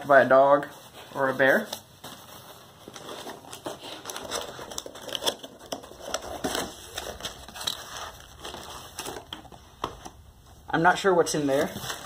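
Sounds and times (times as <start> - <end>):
cardboard box being opened: 2.8 - 9.4.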